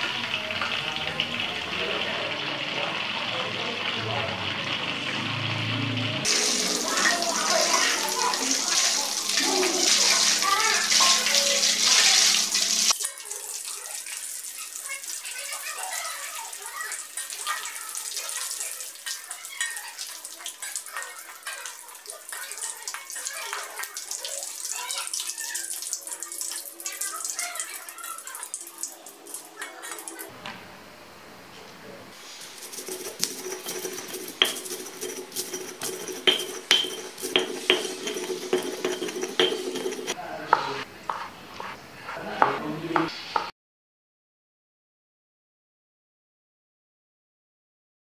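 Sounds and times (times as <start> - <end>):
crackers frying in hot oil: 0.0 - 30.3, 32.1 - 40.8
stone pestle grinding in mortar: 32.4 - 41.3
metal fork clinking: 32.6 - 40.2.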